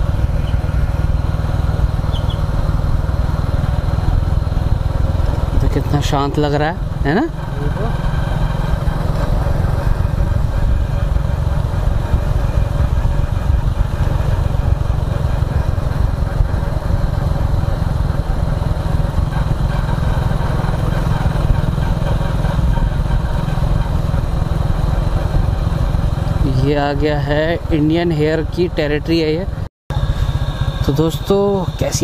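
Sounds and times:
motorcycle engine running: 0.0 - 32.0.

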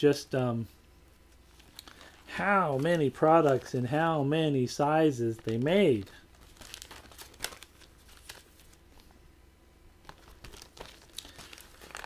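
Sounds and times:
chip bags crinkling: 1.4 - 4.3, 5.1 - 9.1, 10.0 - 12.0.

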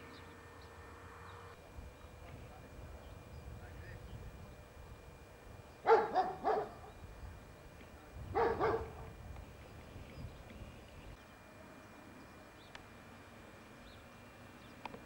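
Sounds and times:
dog barking: 5.8 - 6.9, 8.3 - 9.1.

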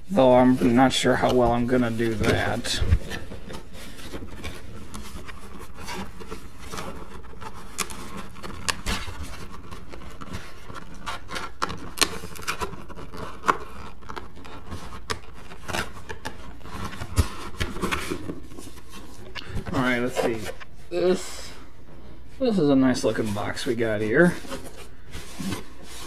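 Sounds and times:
cardboard box rubbing and scraping: 24.3 - 26.0.

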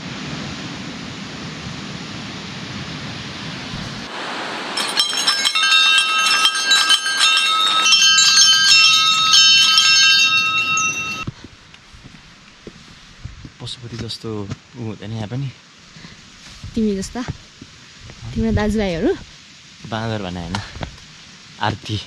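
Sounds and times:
small metal bells ringing: 4.7 - 11.3.

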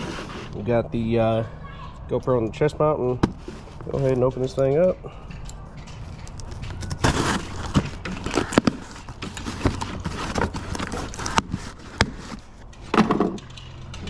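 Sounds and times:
sharp clicks and knocks: 3.2 - 14.0
packaging rustling and tearing: 6.3 - 12.6.

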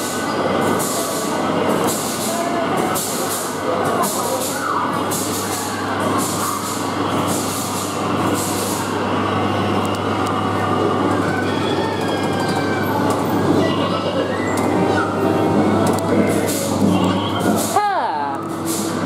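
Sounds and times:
indoor kiddie ride din: 0.0 - 19.0.

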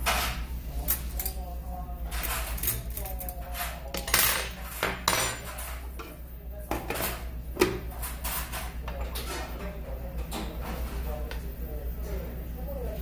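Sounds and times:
steady low hum: 0.0 - 13.0
utensils clinking on ceramic dishes: 2.2 - 6.2.

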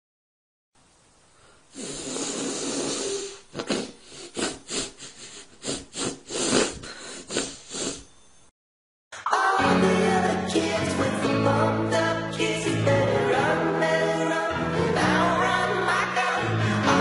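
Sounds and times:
person snorting through the nose: 1.7 - 8.1.

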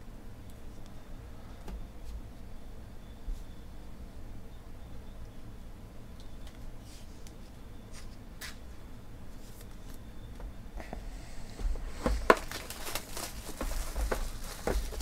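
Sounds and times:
plastic shrink-wrap crackling: 11.8 - 15.0.

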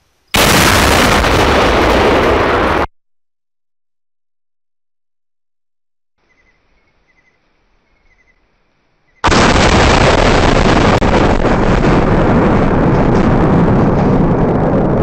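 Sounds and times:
very loud explosion blast: 0.4 - 2.9, 9.2 - 15.0.

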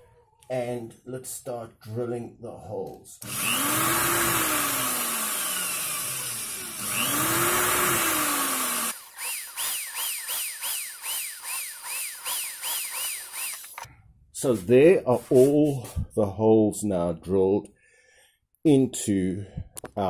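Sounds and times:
electric drill boring into wood: 3.2 - 13.9.

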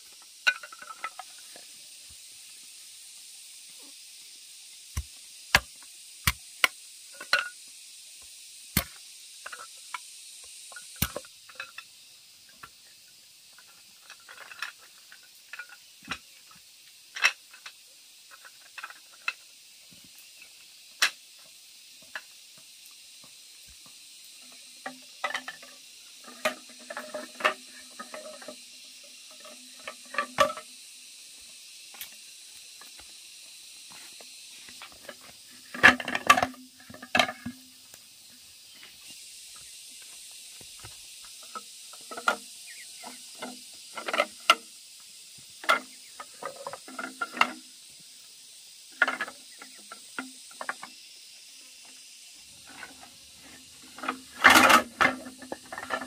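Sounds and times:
faint steady hiss: 0.0 - 56.0
objects clicking and knocking: 0.2 - 1.7, 5.0 - 7.6, 8.8 - 11.9, 13.5 - 19.5, 24.4 - 30.7, 33.9 - 38.0, 40.8 - 44.8, 45.6 - 47.7, 49.0 - 51.0, 52.6 - 56.0
objects clattering: 0.4 - 1.6, 24.4 - 30.7, 34.7 - 37.7, 52.6 - 56.0.

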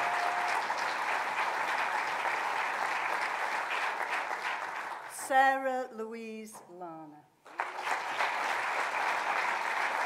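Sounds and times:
audience applauding: 0.0 - 5.2, 7.4 - 10.0.

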